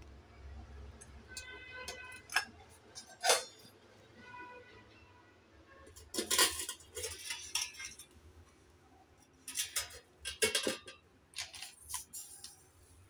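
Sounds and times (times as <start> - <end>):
steel cookware clinks and scrapes: 1.3 - 3.8, 5.8 - 8.2, 9.2 - 12.6.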